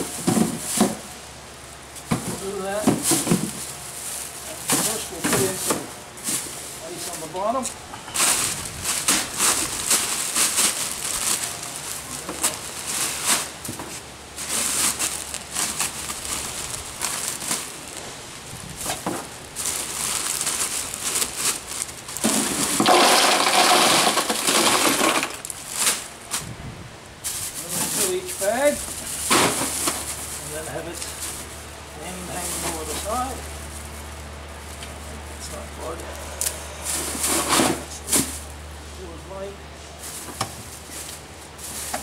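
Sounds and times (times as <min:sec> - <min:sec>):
plastic bag crinkling: 0:08.2 - 0:13.7, 0:14.3 - 0:26.5
ice cubes clinking: 0:22.5 - 0:25.6.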